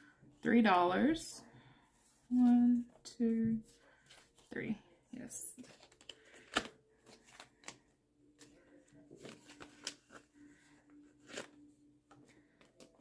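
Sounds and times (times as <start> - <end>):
plastic envelopes crinkling: 5.5 - 13.0.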